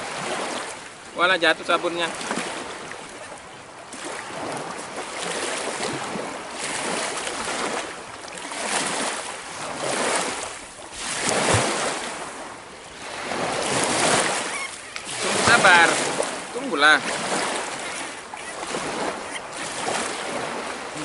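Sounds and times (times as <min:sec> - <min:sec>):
waves washing against rocks: 0:00.0 - 0:21.0.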